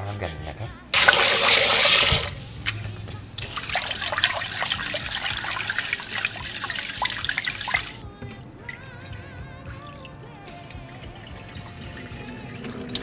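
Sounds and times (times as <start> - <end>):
hands washing rice in water: 1.0 - 8.0
water splashing and sloshing: 1.0 - 13.0.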